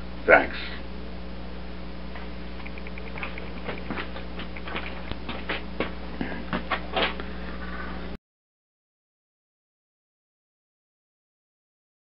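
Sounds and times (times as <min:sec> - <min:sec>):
low electrical hum: 0:00.0 - 0:08.2.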